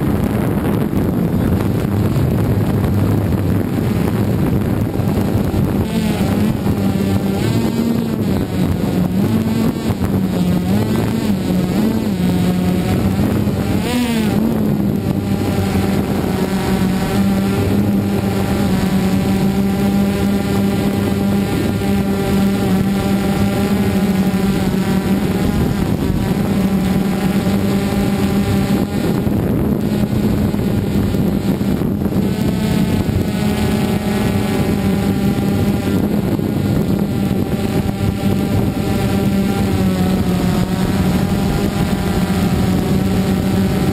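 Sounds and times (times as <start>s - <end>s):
drone propellers buzzing: 0.0s - 43.9s.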